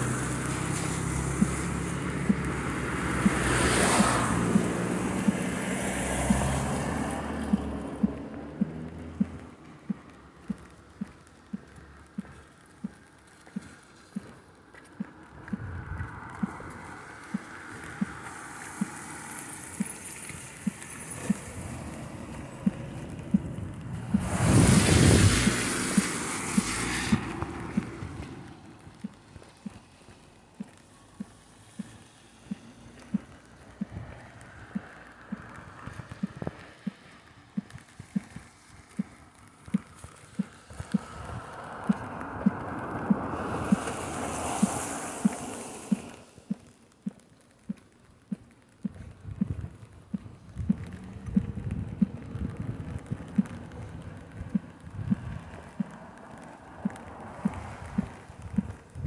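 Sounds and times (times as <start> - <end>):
car tyres hissing on wet road: 0.0 - 59.0
footsteps on wet pavement: 0.0 - 59.0
hissing rush: 24.1 - 28.0, 43.0 - 46.4.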